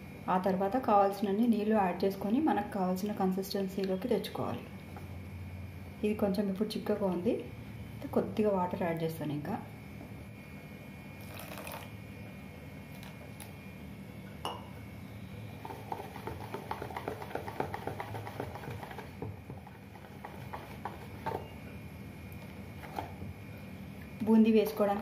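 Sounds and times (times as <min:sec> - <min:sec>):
whisk clicking against bowl: 0:15.9 - 0:19.1.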